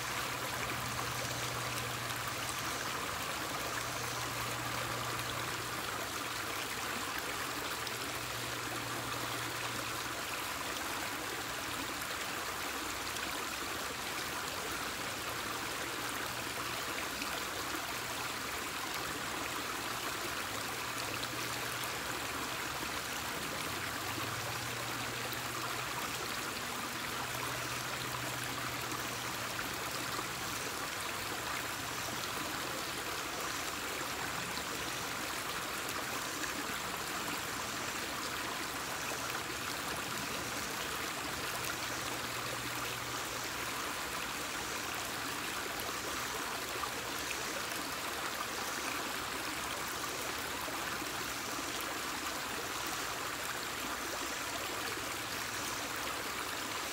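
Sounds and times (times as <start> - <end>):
stream splashing over stones: 0.0 - 56.9.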